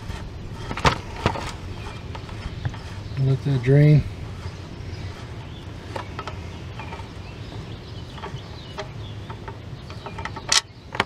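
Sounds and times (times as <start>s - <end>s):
metal clatter: 0.0s - 11.0s.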